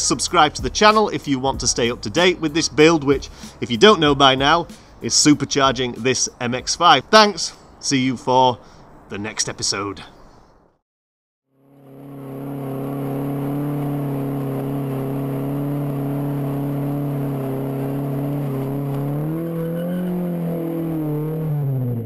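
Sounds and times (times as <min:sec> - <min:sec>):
rear wheels spinning: 0:11.6 - 0:21.9
car engine revving high: 0:11.6 - 0:22.0.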